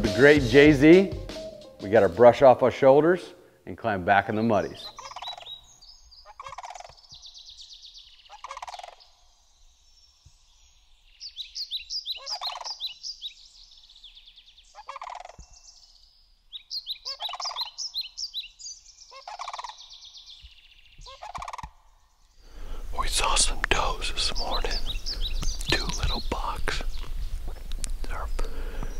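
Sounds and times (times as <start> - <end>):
birds trilling: 4.3 - 28.9
cranes calling: 4.8 - 7.6, 8.2 - 9.2, 11.6 - 13.2, 14.7 - 15.6, 16.6 - 21.9.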